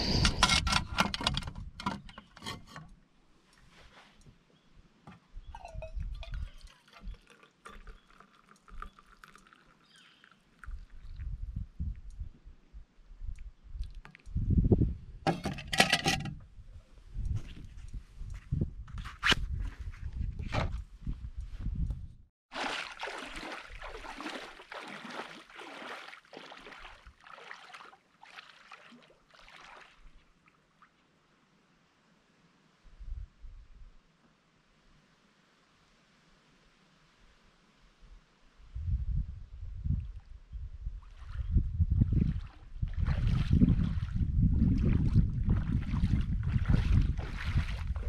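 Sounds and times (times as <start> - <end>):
liquid pouring into metal mug: 5.6 - 11.2
footsteps wading through water: 22.5 - 30.3, 41.0 - 48.0.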